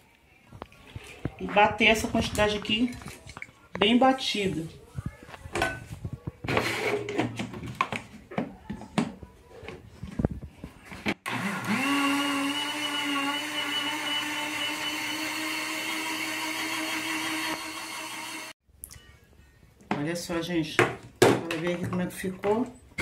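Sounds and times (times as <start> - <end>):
blender motor running: 11.2 - 18.6.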